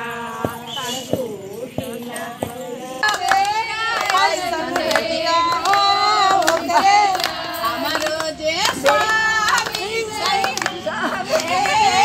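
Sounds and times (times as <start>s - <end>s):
women singing folk song: 0.0s - 12.0s
hand claps: 1.8s - 12.0s.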